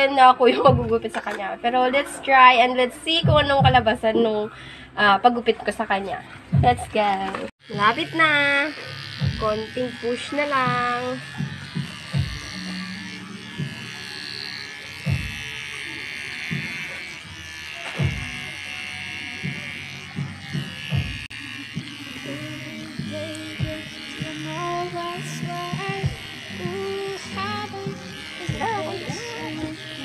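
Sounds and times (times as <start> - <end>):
background music: 0.0 - 30.0
electric hair clipper buzzing: 7.2 - 30.0.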